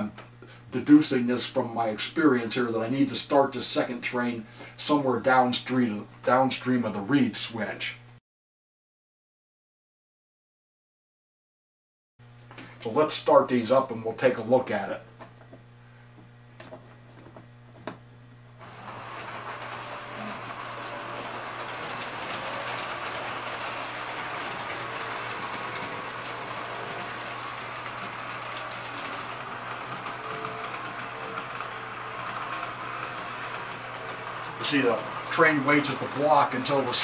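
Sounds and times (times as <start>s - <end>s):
model trains whirring on rails: 18.6s - 37.0s.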